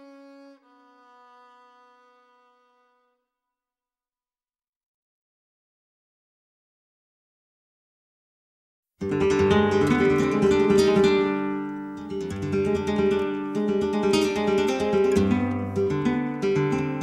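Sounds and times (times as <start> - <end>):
strummed acoustic guitar: 9.0 - 17.0.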